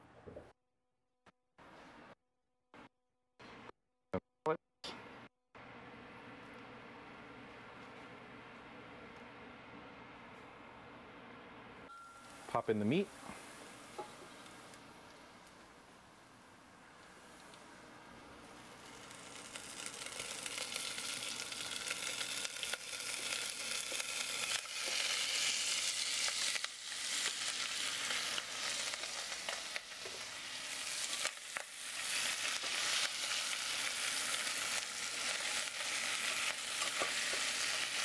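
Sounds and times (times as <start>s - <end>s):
meat sizzling in hot oil: 18.8s - 38.0s.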